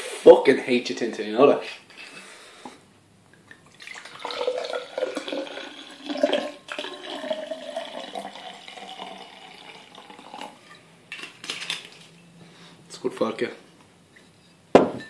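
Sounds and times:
liquid pouring into glass over ice: 0:03.7 - 0:10.7.

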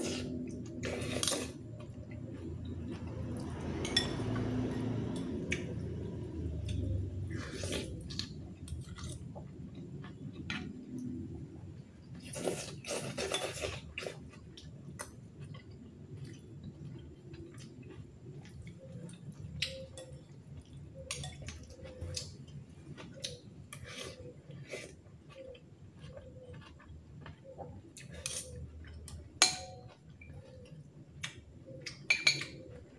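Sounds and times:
cutlery clinking on ceramic bowl: 0:03.8 - 0:04.3, 0:29.4 - 0:29.9, 0:32.1 - 0:32.6.

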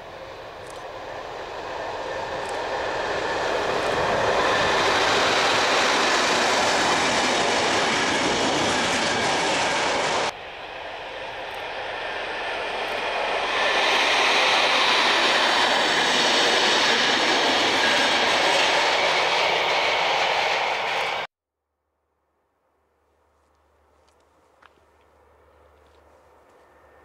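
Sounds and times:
freight train rolling past: 0:00.0 - 0:21.3.

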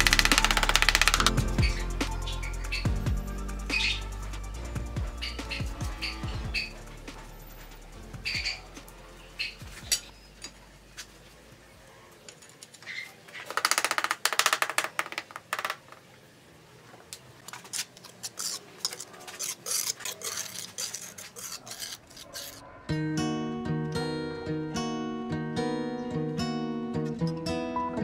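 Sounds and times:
trowel scraping on mortar and tile: 0:17.5 - 0:22.7.

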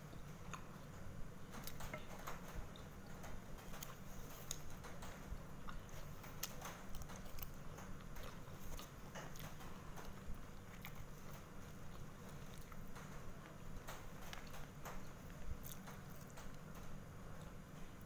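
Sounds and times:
chewing: 0:00.1 - 0:17.6.

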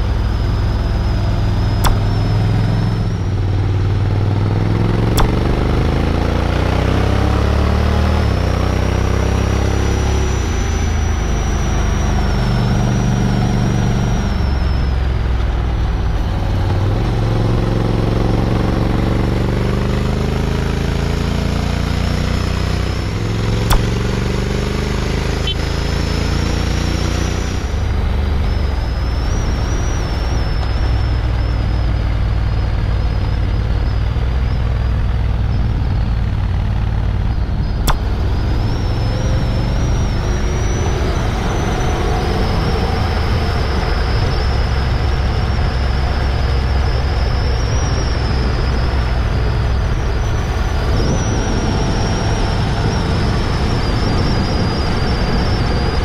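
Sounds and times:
motorcycle engine running: 0:00.0 - 0:56.0
wind and road noise: 0:00.0 - 0:56.0
sharp clicks: 0:01.7 - 0:03.3, 0:04.7 - 0:06.3, 0:23.5 - 0:24.5, 0:37.8 - 0:38.6.

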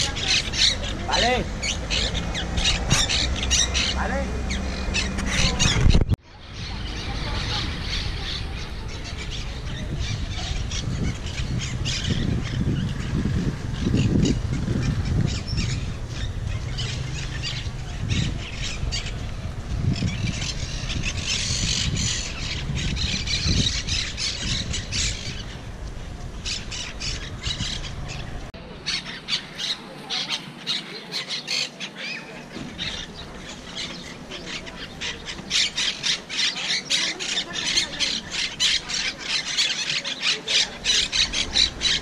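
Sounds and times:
parakeets squawking: 0:00.0 - 0:25.7, 0:26.4 - 0:42.0.

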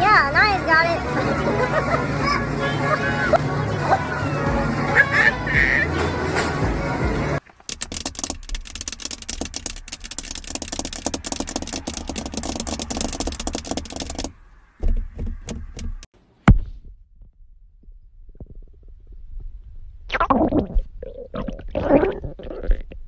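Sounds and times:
car door handle and lock clicking: 0:07.5 - 0:16.0.

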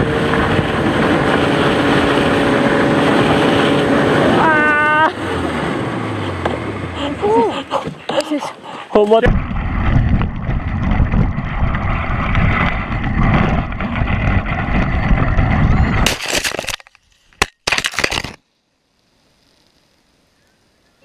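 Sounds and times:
wind rumble on microphone: 0:00.0 - 0:05.2, 0:09.2 - 0:16.1
dog sled over snow: 0:00.1 - 0:16.0.

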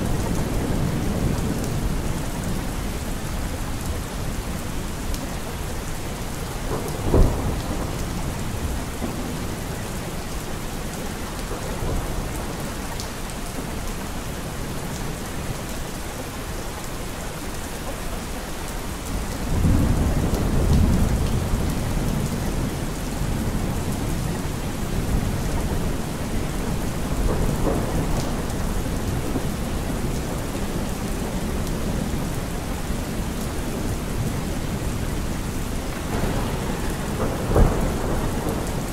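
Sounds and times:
low rumble of thunder: 0:00.0 - 0:12.9, 0:19.1 - 0:38.9
steady rain: 0:00.0 - 0:38.9
thunderclap: 0:06.7 - 0:08.0, 0:36.0 - 0:38.9.

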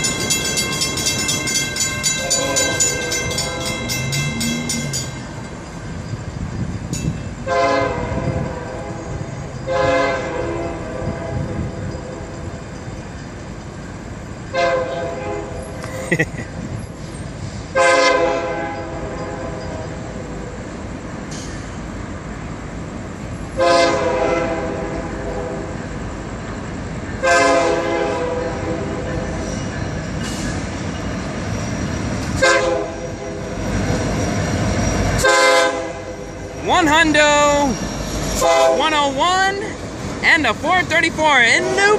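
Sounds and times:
train rumbling: 0:00.0 - 0:41.9
train horn blasts: 0:02.1 - 0:05.1, 0:07.4 - 0:12.3, 0:14.5 - 0:15.8, 0:17.7 - 0:20.0, 0:23.6 - 0:25.8, 0:27.2 - 0:29.2, 0:32.4 - 0:33.4, 0:35.2 - 0:37.1, 0:38.4 - 0:39.7, 0:40.8 - 0:41.9.

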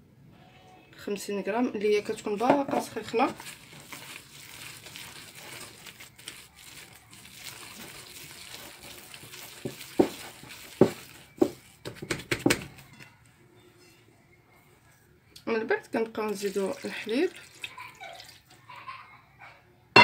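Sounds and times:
hand squishing dough: 0:01.8 - 0:12.9
wet squelches and knocks: 0:07.2 - 0:12.7.

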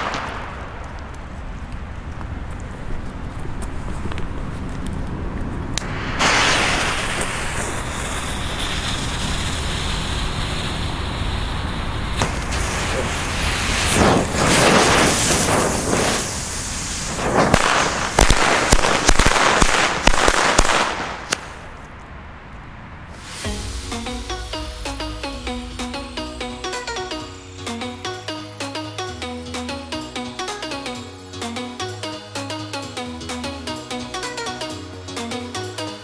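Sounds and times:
firecrackers banging: 0:00.0 - 0:02.5, 0:05.7 - 0:28.1
wind rumbling on microphone: 0:00.0 - 0:24.1
fuses hissing: 0:05.8 - 0:18.7, 0:23.1 - 0:28.2.

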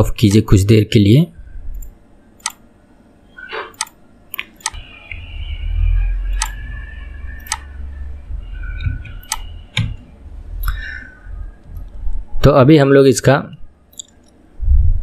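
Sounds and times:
low hum: 0:01.3 - 0:12.6, 0:13.5 - 0:15.0
computer mouse clicking: 0:01.7 - 0:02.6, 0:03.6 - 0:05.2, 0:06.3 - 0:06.6, 0:07.4 - 0:07.7, 0:08.8 - 0:10.0, 0:13.9 - 0:14.4.

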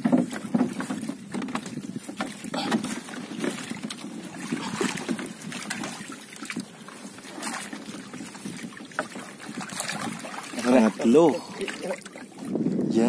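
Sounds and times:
trap frame knocking and rattling: 0:00.0 - 0:06.0
water splashing and trickling: 0:00.0 - 0:13.0.

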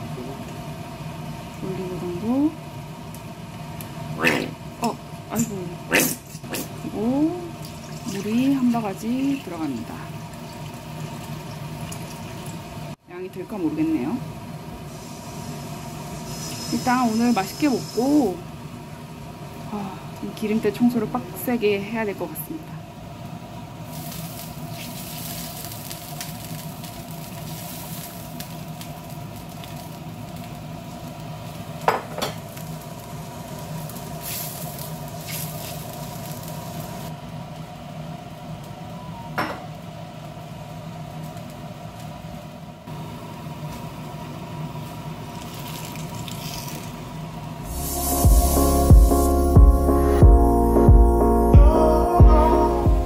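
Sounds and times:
steady hum: 0:00.0 - 0:24.7, 0:47.0 - 0:53.0
broth simmering in a frying pan: 0:06.7 - 0:39.0, 0:39.7 - 0:49.2.

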